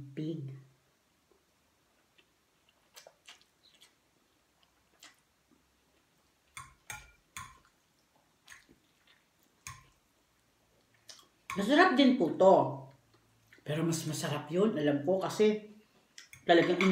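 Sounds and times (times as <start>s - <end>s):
person chewing with mouth smacks: 1.9s - 10.0s, 10.8s - 11.4s.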